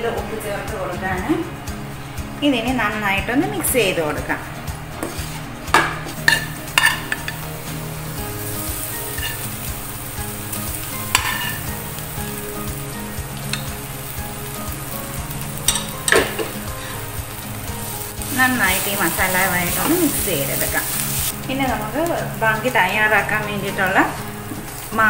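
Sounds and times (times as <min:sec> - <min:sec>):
masala sizzling in a frying pan: 0:00.0 - 0:25.0
metal knocking against a pan: 0:05.0 - 0:07.4, 0:11.1 - 0:11.6, 0:15.7 - 0:16.6.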